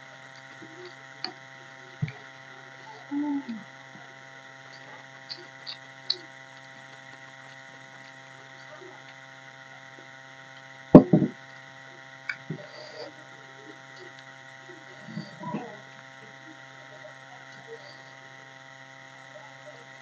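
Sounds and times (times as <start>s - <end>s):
steady background hum: 0.0s - 20.0s
mouth clicks while chewing: 4.6s - 7.3s
loud knock on table: 11.0s - 11.4s.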